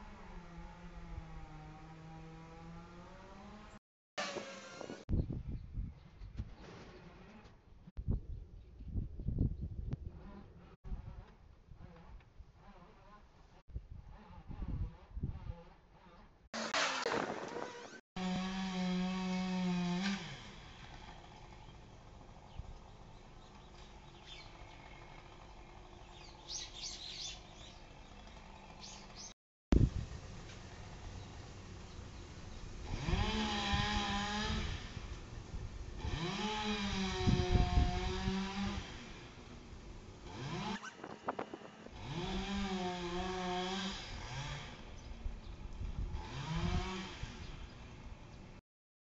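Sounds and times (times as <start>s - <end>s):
chainsaw revving: 0.0s - 5.0s, 16.0s - 29.4s, 32.8s - 45.1s, 45.9s - 48.0s
songbird chirps: 21.5s - 29.4s.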